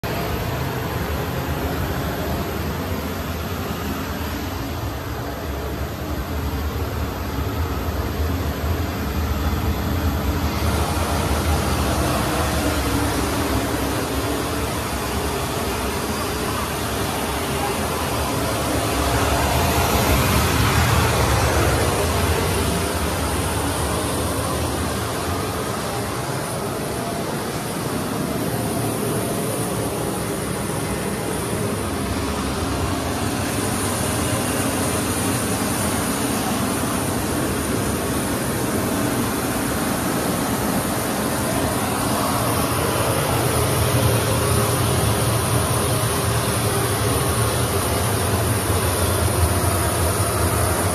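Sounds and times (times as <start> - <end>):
jet aircraft whine and rumble: 0.0 - 50.9.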